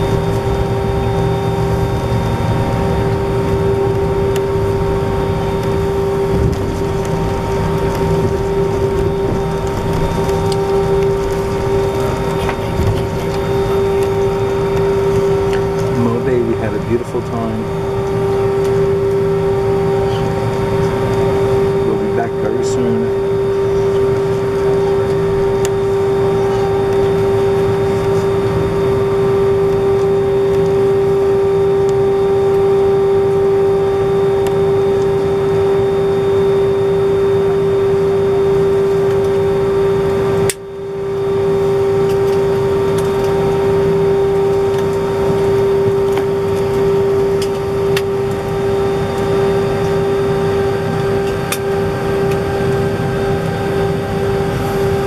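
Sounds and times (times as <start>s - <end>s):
jet engines humming in cabin: 0.0s - 55.0s.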